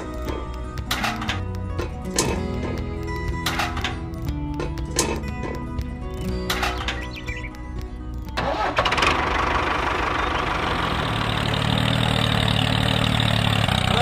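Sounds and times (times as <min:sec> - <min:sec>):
music: 0:00.0 - 0:11.2
engine running: 0:00.0 - 0:14.0.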